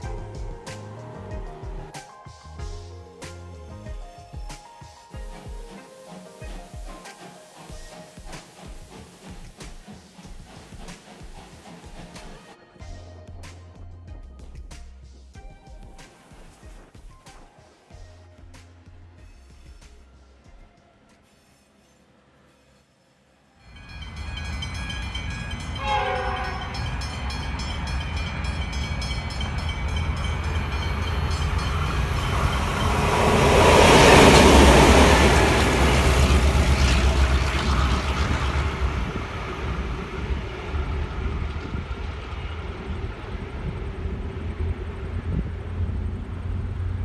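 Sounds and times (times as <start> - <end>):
locomotive horn blast: 23.7 - 42.9
low diesel rumble: 34.4 - 47.0.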